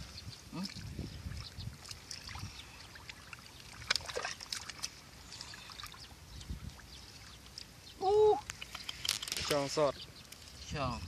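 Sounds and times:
hands splashing in muddy water: 0.6s - 6.0s.

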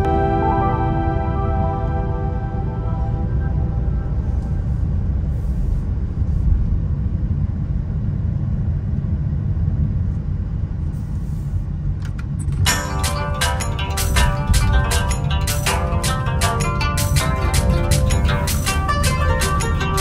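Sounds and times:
music: 0.0s - 4.8s, 12.6s - 20.0s
car driving rumble: 0.0s - 20.0s.

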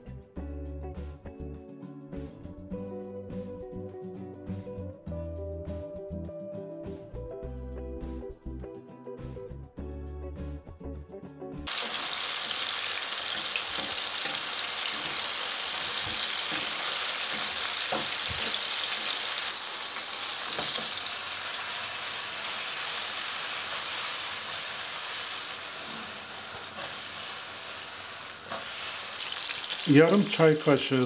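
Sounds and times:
mushrooms sizzling in frying pan: 11.7s - 31.0s
wooden spatula knocks: 17.3s - 18.6s.

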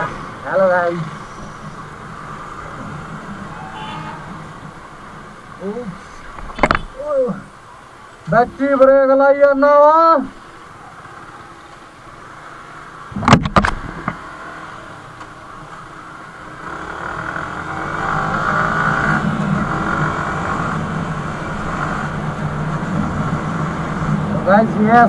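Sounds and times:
motorcycle engine: 16.4s - 24.5s.

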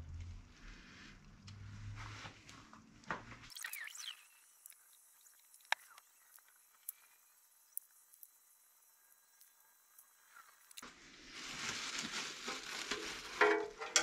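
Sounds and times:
sharp small clicks: 3.5s - 8.5s.

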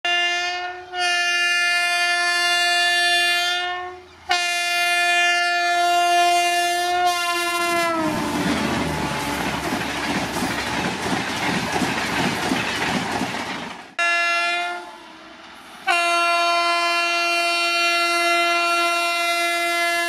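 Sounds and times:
locomotive air horn blasts: 0.0s - 9.6s, 14.0s - 15.2s, 15.8s - 20.0s.

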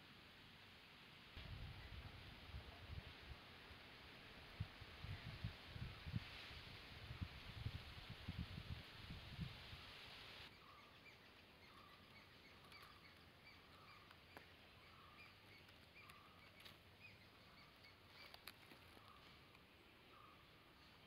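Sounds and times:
steady hiss: 0.0s - 21.0s
faint bird chirps: 10.5s - 21.0s.

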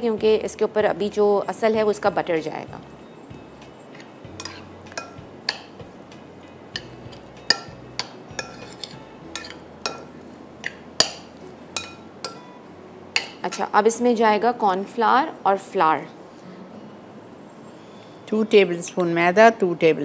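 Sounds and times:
metal spoon clinking ceramic bowl: 3.9s - 5.8s, 6.7s - 12.4s.

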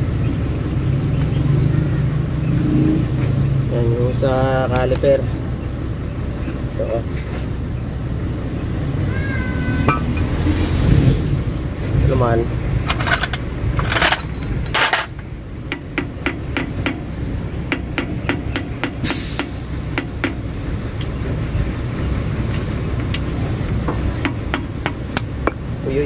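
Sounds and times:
hammer tapping metal: 15.7s - 17.1s, 17.7s - 20.4s.

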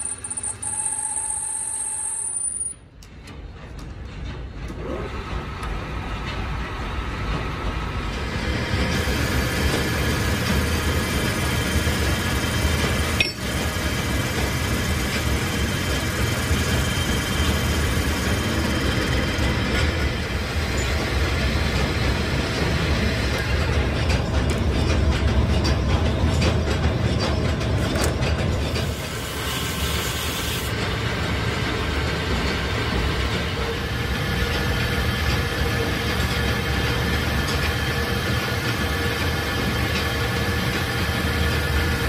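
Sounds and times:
metal lathe running: 8.2s - 42.0s
cutting tool shaving steel: 28.7s - 30.8s.

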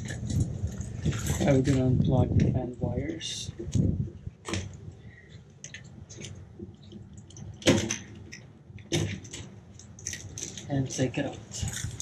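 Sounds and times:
sharp clicks and knocks: 5.6s - 12.0s.

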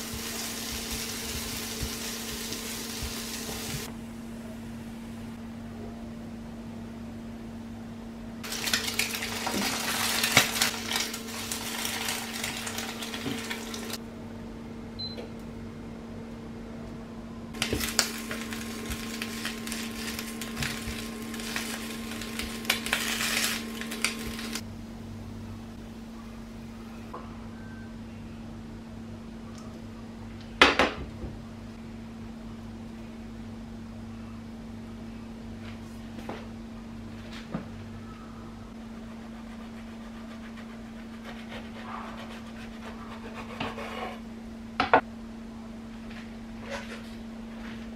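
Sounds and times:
crackling clattering cooking noise: 0.0s - 3.9s, 8.4s - 14.0s, 17.6s - 24.6s
steady low hum: 0.0s - 47.9s.

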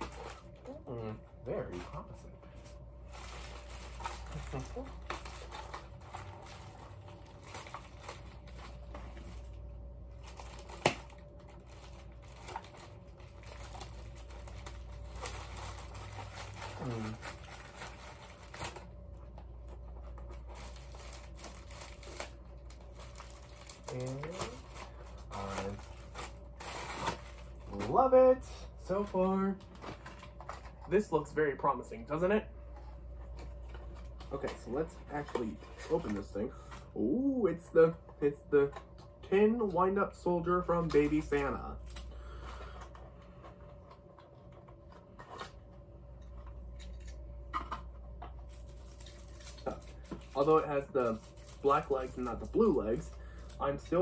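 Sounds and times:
plastic packaging crinkling: 2.7s - 18.9s, 19.6s - 28.0s, 48.4s - 54.0s.

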